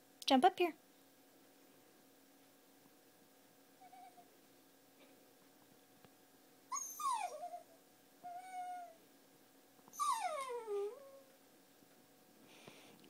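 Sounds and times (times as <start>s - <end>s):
puppy whining: 3.8s - 4.3s, 6.7s - 9.0s, 9.9s - 11.4s.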